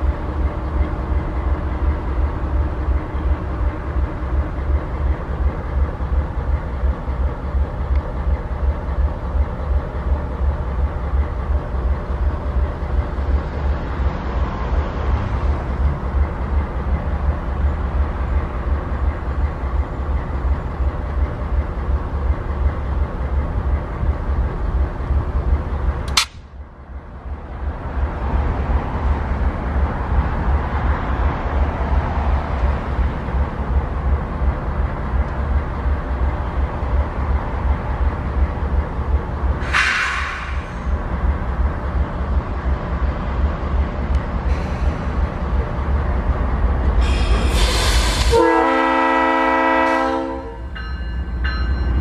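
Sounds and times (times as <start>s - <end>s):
locomotive idling rumble: 0.0s - 14.4s, 15.1s - 52.0s
sharp click: 26.0s - 26.5s.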